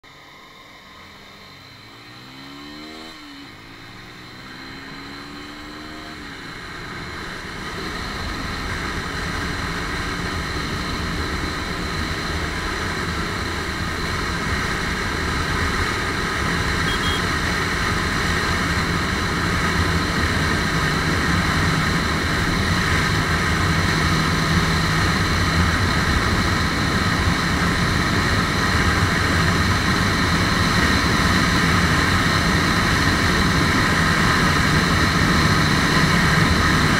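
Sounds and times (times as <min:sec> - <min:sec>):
motorcycle engine accelerating: 0:00.0 - 0:36.9.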